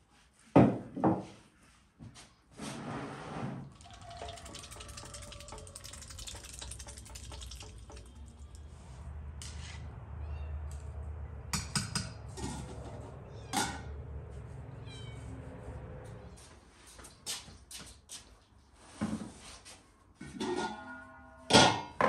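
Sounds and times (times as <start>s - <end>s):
bowl and bucket clinking: 3.6s - 8.7s
duck dabbling bill in water: 3.7s - 8.7s.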